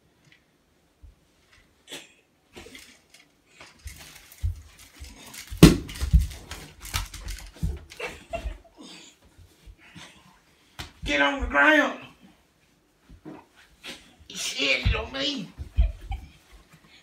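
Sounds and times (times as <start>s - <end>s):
clothes rustling: 2.5s - 17.0s
body thumps on floor: 5.5s - 6.4s
people scuffling on carpet: 7.7s - 17.0s.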